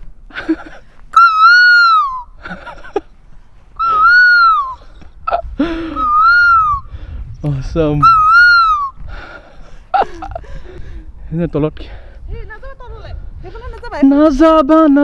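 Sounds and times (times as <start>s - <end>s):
person hooting through cupped hands: 0.5s - 3.0s, 3.8s - 6.9s
breathing: 6.9s - 7.3s, 9.0s - 12.3s.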